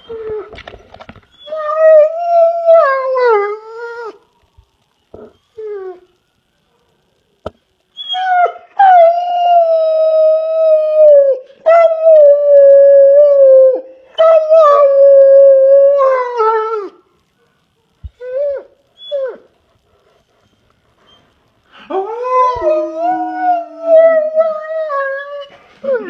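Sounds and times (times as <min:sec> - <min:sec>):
dog howling: 0:08.0 - 0:17.0, 0:21.8 - 0:26.0.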